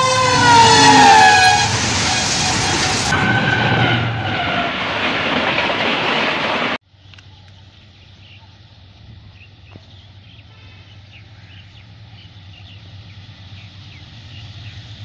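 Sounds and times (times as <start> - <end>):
train horn blowing: 0.0 - 4.7
train rumbling past: 0.0 - 6.8, 7.7 - 15.0.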